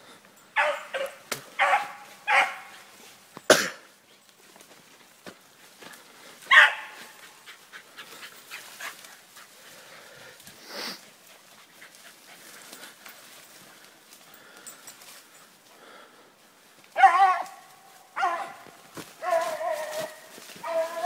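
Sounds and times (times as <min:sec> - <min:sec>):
hound baying: 0:00.6 - 0:03.0, 0:06.5 - 0:09.7, 0:17.0 - 0:21.0
brush crackling: 0:00.6 - 0:21.0.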